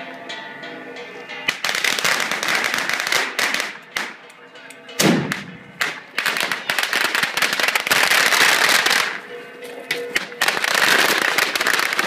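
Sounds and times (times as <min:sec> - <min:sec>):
firecrackers popping: 0:01.5 - 0:04.3, 0:05.0 - 0:09.2, 0:09.9 - 0:12.0.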